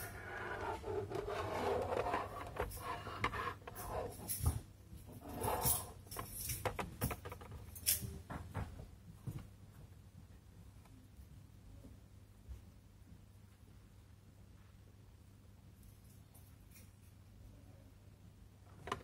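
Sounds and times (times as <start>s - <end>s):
plastic parts rubbing and scraping: 0.0s - 4.3s.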